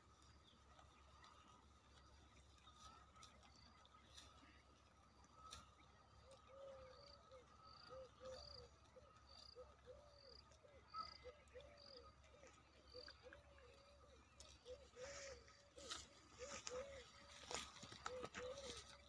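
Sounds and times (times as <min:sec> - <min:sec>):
bird high chirp: 0:06.3 - 0:19.0
bird low arching calls: 0:09.5 - 0:19.0.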